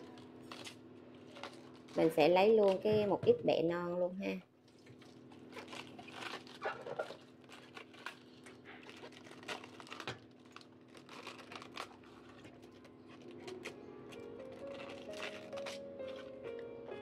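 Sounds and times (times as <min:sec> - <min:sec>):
soft music: 0:12.7 - 0:17.0
leaves snapping off stalks: 0:12.8 - 0:16.3.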